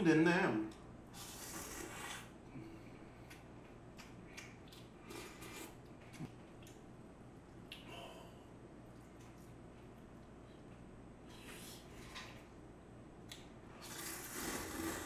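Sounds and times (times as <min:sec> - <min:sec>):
soft chewing with smacks: 0:00.7 - 0:06.9, 0:08.8 - 0:12.5
noodle slurp: 0:01.2 - 0:02.3, 0:13.8 - 0:15.0.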